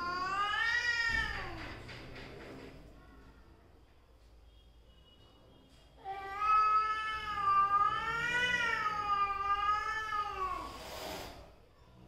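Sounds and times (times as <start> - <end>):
cat yowling: 0.0 - 1.6, 6.1 - 10.8.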